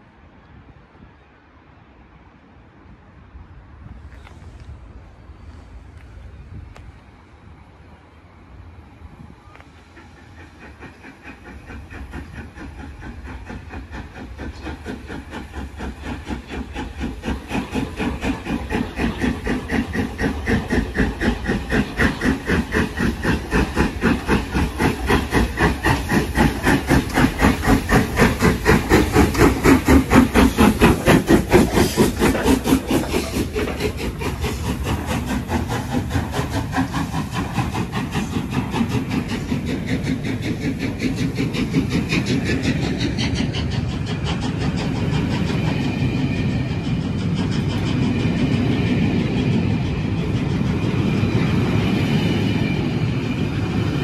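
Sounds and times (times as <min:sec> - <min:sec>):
steam locomotive exhaust beats: 0:02.3 - 0:54.0.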